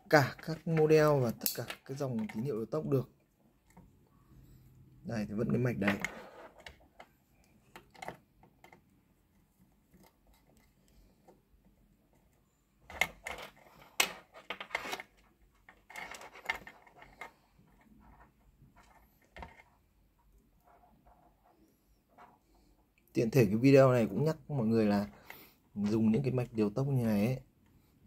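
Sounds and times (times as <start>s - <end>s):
screwdriver and wires clicking: 0.4s - 2.6s.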